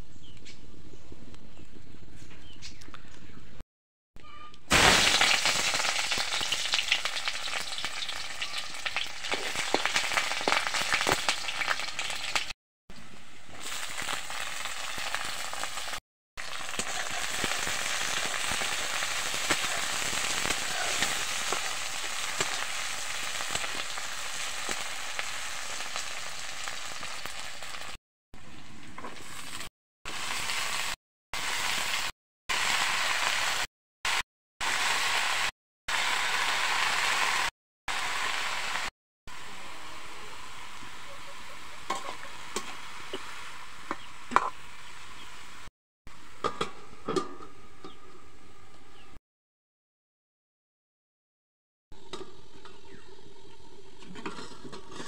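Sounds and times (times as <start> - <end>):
oil sizzling in a wok: 4.7 - 45.7.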